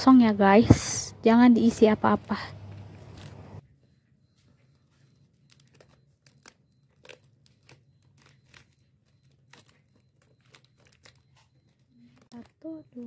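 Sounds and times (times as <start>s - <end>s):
plastic packets crinkling: 5.3s - 13.0s.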